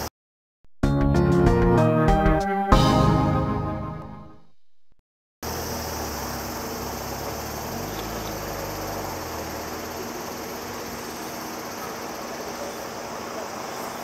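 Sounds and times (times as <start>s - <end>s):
high insect drone: 5.4s - 14.0s.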